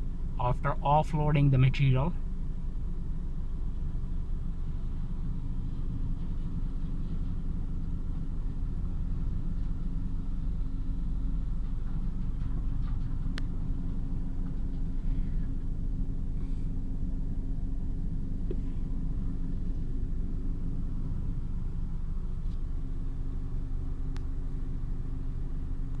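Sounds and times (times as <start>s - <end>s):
car rumbling over dirt road: 0.0s - 26.0s
constant hum: 0.0s - 26.0s.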